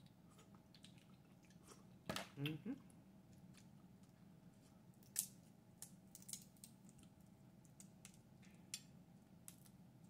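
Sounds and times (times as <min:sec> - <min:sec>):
crawfish shell cracking and peeling: 0:05.0 - 0:09.8.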